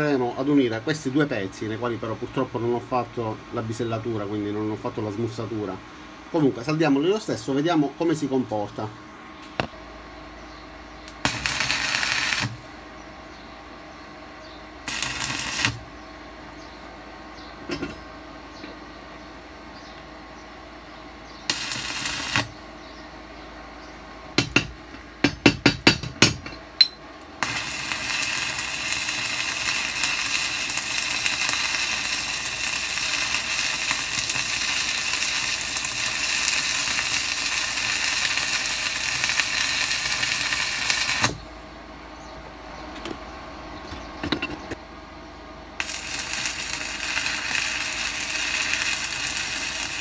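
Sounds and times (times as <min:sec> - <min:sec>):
welding arc crackling: 0:11.0 - 0:12.8, 0:14.8 - 0:15.9, 0:21.5 - 0:22.6, 0:27.3 - 0:41.5, 0:45.8 - 0:50.0
electrode striking cracks: 0:11.1 - 0:12.6, 0:14.9 - 0:15.8, 0:21.5 - 0:22.6, 0:27.4 - 0:41.4, 0:45.8 - 0:50.0.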